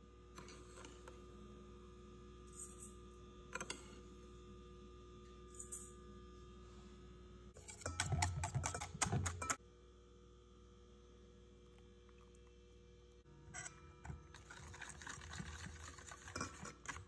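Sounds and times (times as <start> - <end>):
low steady hum: 0.0 - 17.0
whisk clattering in metal bowl: 7.6 - 9.6, 14.3 - 17.0.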